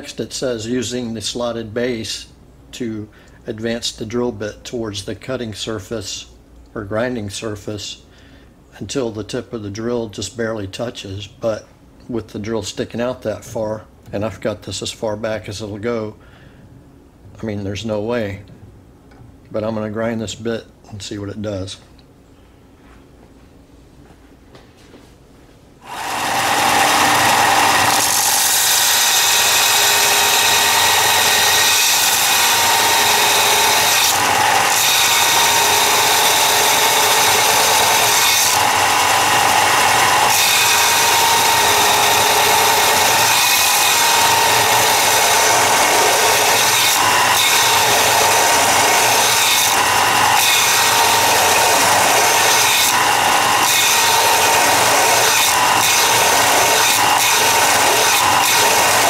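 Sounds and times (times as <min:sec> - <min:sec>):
belt sander grinding steel: 0:25.8 - 0:59.0.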